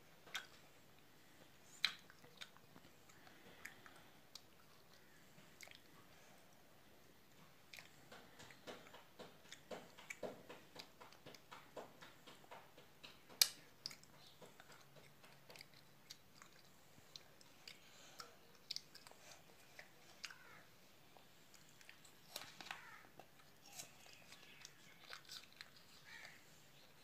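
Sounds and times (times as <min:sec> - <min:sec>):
child chewing food: 0:00.0 - 0:27.0.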